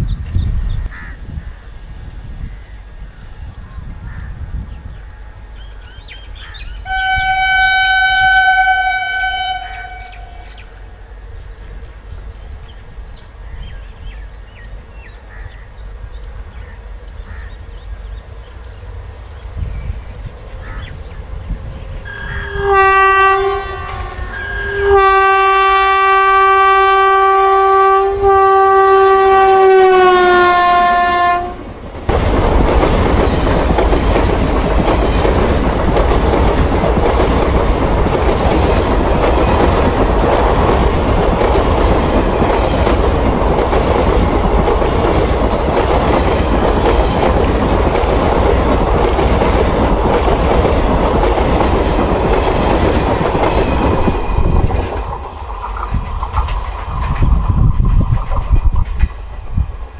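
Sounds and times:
train passing close by: 0:00.0 - 0:59.9
locomotive horn blasts: 0:06.8 - 0:10.7, 0:22.1 - 0:31.6.

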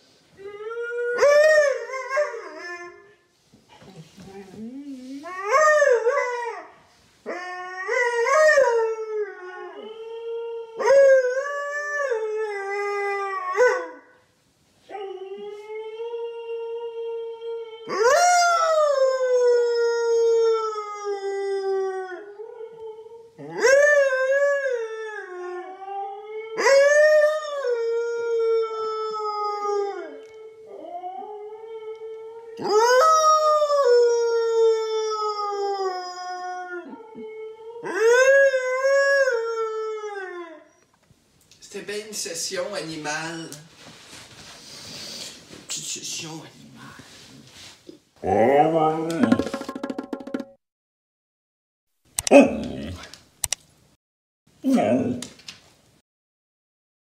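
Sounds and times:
dog howling: 0:14.9 - 0:40.7, 0:48.2 - 0:49.3, 0:52.3 - 0:53.1.

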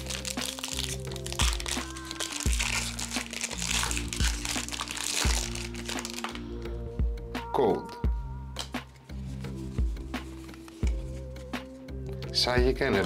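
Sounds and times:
foil wrapper crinkling: 0:00.0 - 0:06.4
music with deep steady beat: 0:00.0 - 0:13.0.

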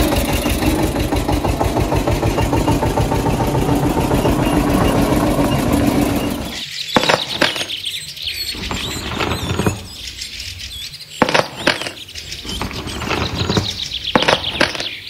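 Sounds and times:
engine-like drone: 0:00.0 - 0:06.7.

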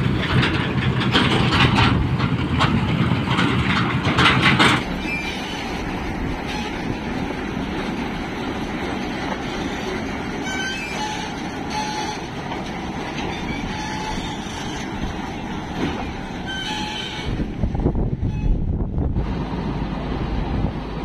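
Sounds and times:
combine harvester clatter and hum: 0:00.0 - 0:21.0
high metallic squeaks: 0:04.9 - 0:06.9, 0:10.4 - 0:12.4, 0:13.2 - 0:15.0, 0:16.0 - 0:17.4.

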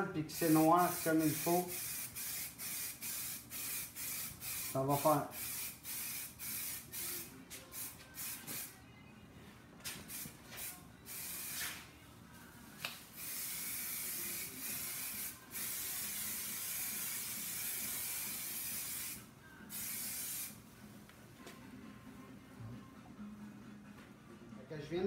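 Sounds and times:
aerosol spray can hissing: 0:00.4 - 0:08.7, 0:10.1 - 0:11.8, 0:13.2 - 0:20.6.

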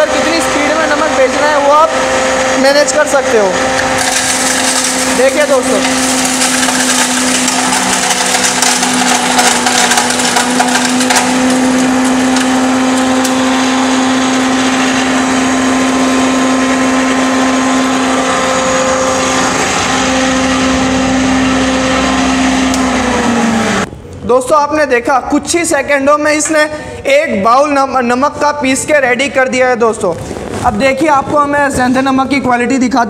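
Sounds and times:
grinding machine hum and whine: 0:00.0 - 0:24.3
rock salt crackling: 0:03.8 - 0:15.0, 0:29.3 - 0:32.4.

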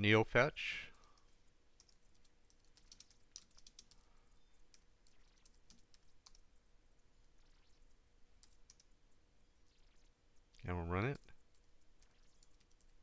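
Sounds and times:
keystrokes on computer keyboard: 0:01.0 - 0:06.4, 0:08.4 - 0:08.9, 0:10.5 - 0:13.0.

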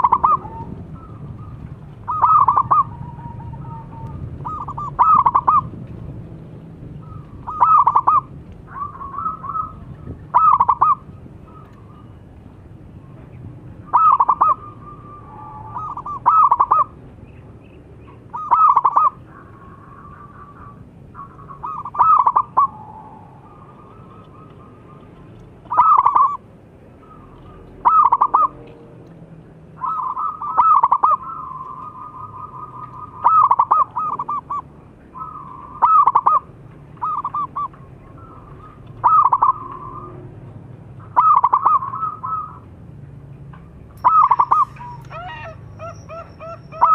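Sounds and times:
dove cooing: 0:00.0 - 0:05.7, 0:07.0 - 0:12.2, 0:13.8 - 0:17.0, 0:18.3 - 0:28.6, 0:29.8 - 0:40.3, 0:41.0 - 0:42.6, 0:44.0 - 0:46.9.

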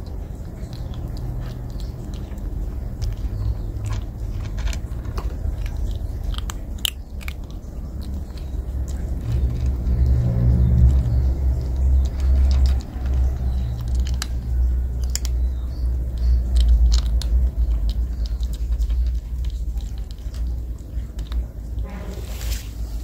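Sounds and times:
kitten crunching dry kibble: 0:00.0 - 0:23.0
steady low rumble: 0:00.0 - 0:23.0.

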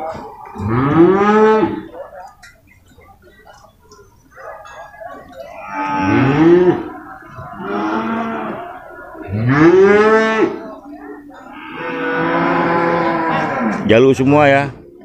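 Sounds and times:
water buffalo bawling: 0:03.4 - 0:13.9.

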